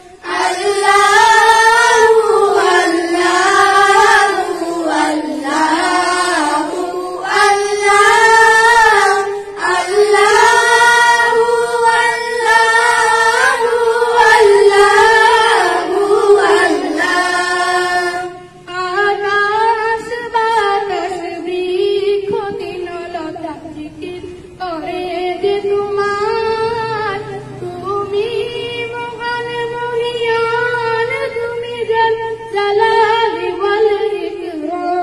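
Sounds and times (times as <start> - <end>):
children singing: 0.0 - 20.2
girl singing into a microphone: 0.0 - 35.0.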